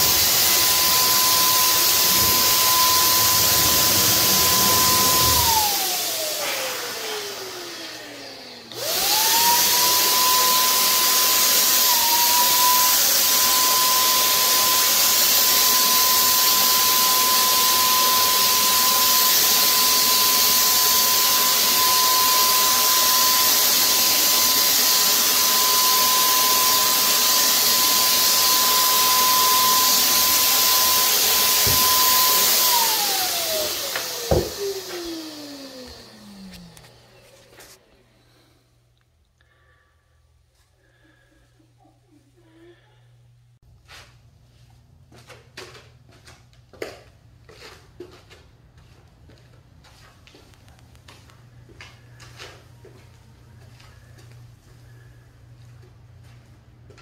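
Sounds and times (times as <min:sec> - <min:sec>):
electric paint sprayer motor whine: 0:00.0 - 0:37.8.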